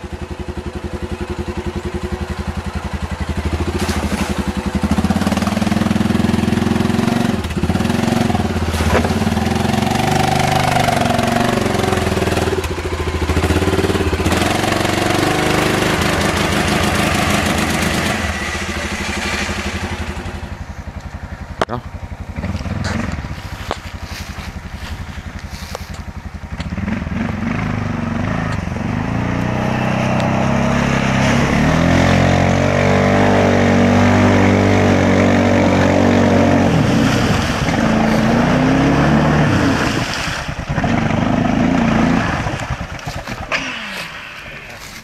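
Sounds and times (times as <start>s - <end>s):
quad engine revving: 0.0s - 45.0s
water splashing: 3.2s - 20.6s, 35.0s - 45.0s.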